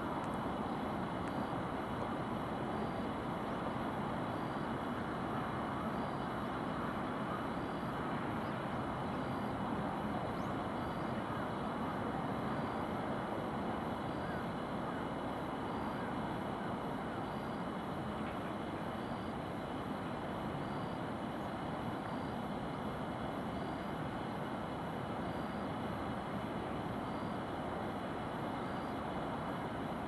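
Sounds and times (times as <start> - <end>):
distant city traffic hum: 0.0 - 30.0.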